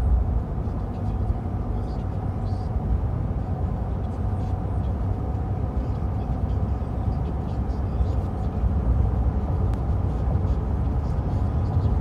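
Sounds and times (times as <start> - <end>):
car driving on highway: 0.0 - 12.0.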